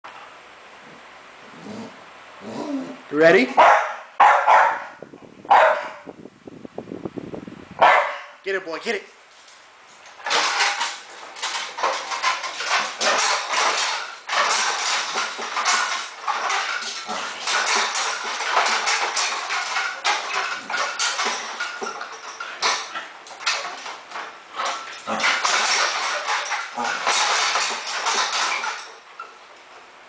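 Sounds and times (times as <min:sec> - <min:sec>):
dog growling: 0:00.8 - 0:03.1, 0:16.8 - 0:17.8, 0:24.6 - 0:25.6, 0:26.6 - 0:27.1
gym cable and pulleys clanking: 0:10.0 - 0:29.8.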